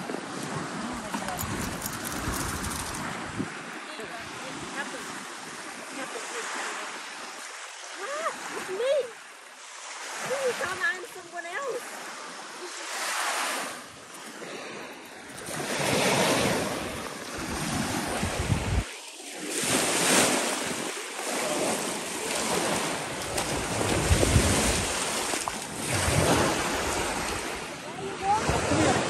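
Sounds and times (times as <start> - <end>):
waves washing onto shore: 0.0 - 29.0
wind on microphone: 0.7 - 4.8, 15.4 - 18.9, 23.3 - 28.9.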